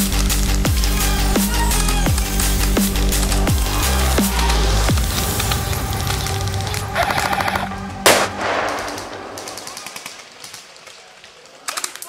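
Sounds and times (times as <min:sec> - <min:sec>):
loud bang: 0:04.8 - 0:11.0
automatic gunfire: 0:08.1 - 0:10.7.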